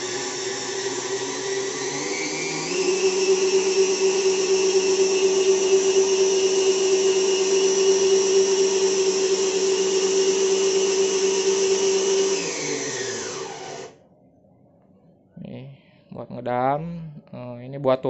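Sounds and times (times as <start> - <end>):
high-pitched electric motor whine: 0.0 - 14.0.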